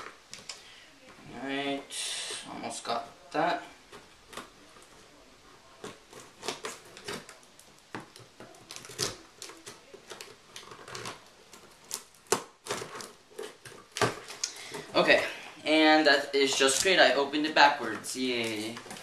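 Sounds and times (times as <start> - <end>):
scissors snipping packing tape: 8.1 - 14.6.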